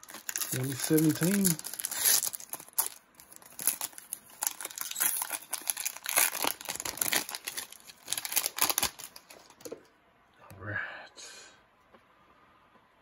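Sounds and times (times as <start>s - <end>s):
foil wrapper crinkling: 0.0s - 9.7s.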